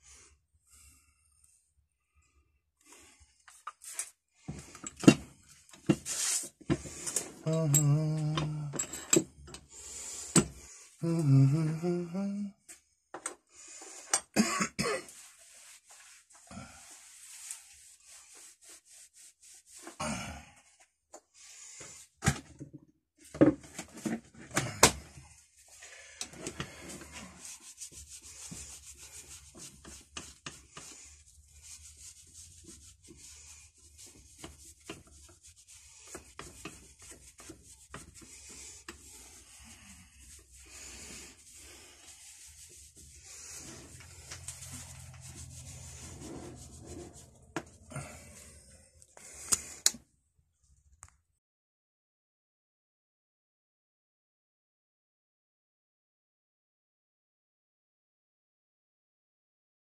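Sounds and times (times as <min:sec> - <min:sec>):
metal knocks and clinks: 0:08.7 - 0:09.6
faint metal scraping: 0:41.8 - 0:48.6.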